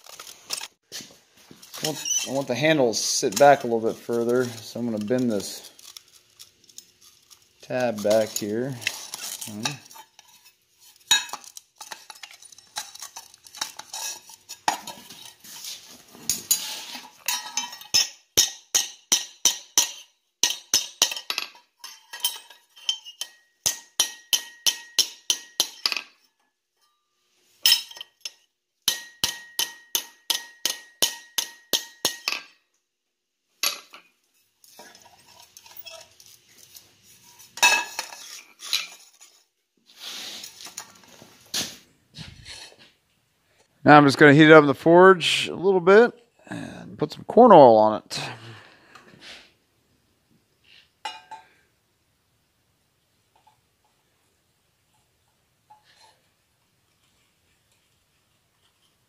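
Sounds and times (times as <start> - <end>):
hammer striking metal on anvil: 23.2 - 25.8, 28.9 - 32.4.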